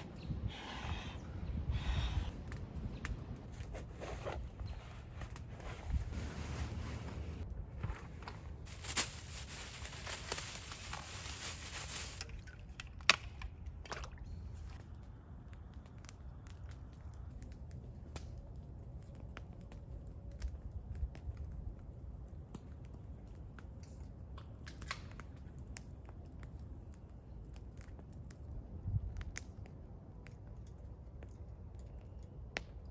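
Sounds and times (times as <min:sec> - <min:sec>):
plastic bag crinkling: 0:08.6 - 0:12.3
campfire crackling and popping: 0:14.8 - 0:32.9.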